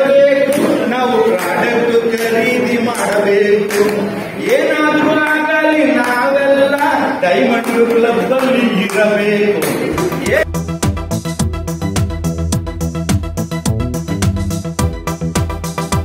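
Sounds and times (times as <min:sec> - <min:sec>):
man singing over loudspeaker: 0:00.0 - 0:10.5
electronic dance music: 0:00.0 - 0:16.0.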